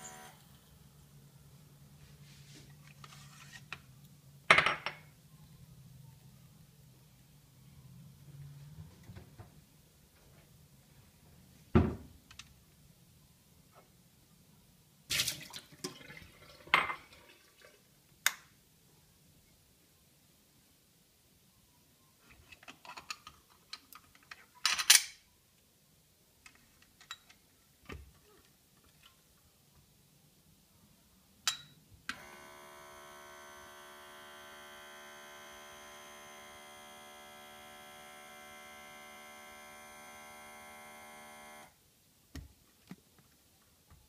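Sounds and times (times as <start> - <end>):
steady electric hum: 0.0 - 1.8, 32.1 - 41.8.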